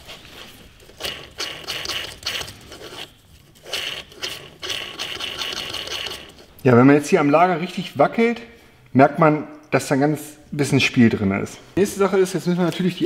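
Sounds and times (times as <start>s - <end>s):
ball bearing scraping rustle: 0.0s - 6.6s.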